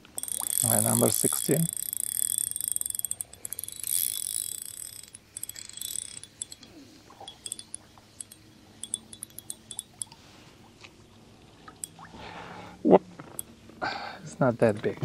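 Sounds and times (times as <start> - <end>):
metallic ticks of reel: 0.0 - 10.2, 11.8 - 12.0
fishing line hissing off reel: 0.1 - 10.2.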